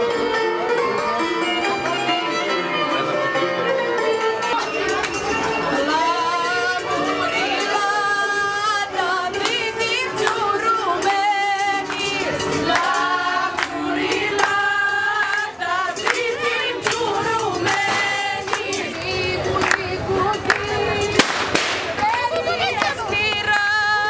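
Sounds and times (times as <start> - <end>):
group singing: 5.6 - 24.0
sharp claps: 15.2 - 23.9.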